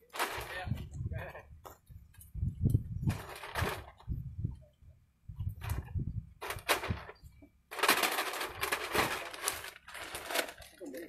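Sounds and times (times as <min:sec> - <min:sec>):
plastic bags crinkling: 0:07.7 - 0:11.0.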